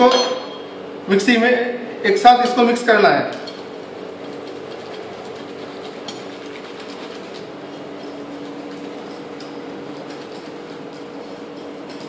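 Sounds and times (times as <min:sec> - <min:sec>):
whisk beating batter in bowl: 0:03.8 - 0:12.0.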